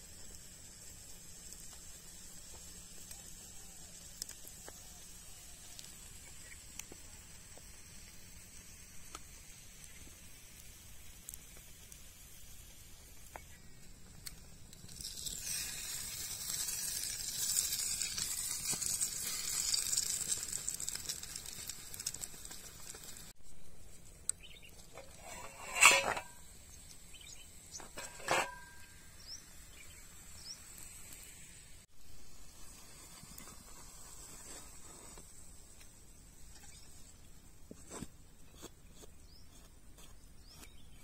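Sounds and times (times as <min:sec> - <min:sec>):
food sizzling in oil: 0:00.0 - 0:23.4, 0:24.7 - 0:35.7
spatula scraping and knocking pan: 0:24.9 - 0:26.4, 0:27.8 - 0:28.8.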